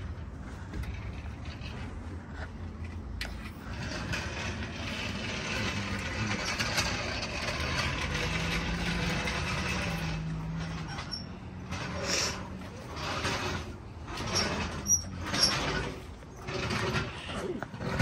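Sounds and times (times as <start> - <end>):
vehicle passing by: 3.6 - 14.2.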